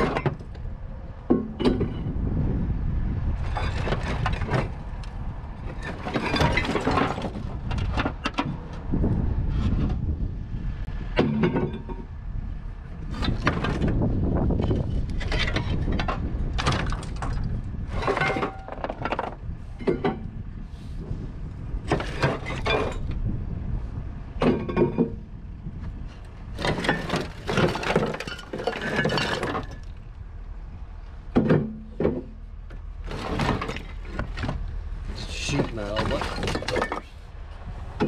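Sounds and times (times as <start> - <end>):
scrap metal clanking: 3.4 - 4.9, 5.6 - 8.7, 13.0 - 21.1, 21.9 - 23.2, 26.2 - 30.0, 31.3 - 37.3.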